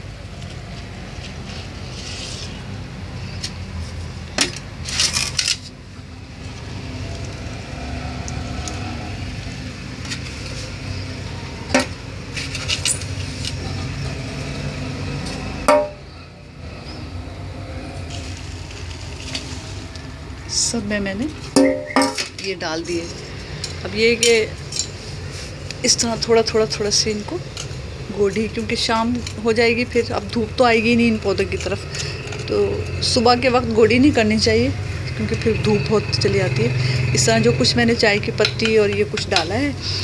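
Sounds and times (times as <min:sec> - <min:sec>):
plant pots clinking: 0:15.3 - 0:16.1, 0:21.5 - 0:25.0
sharp knocks: 0:15.7 - 0:16.0, 0:21.6 - 0:22.3.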